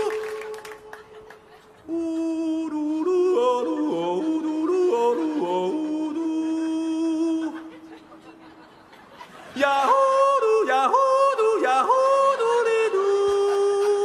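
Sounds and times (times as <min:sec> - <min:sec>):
man yodelling: 0:01.9 - 0:07.7, 0:09.6 - 0:14.0.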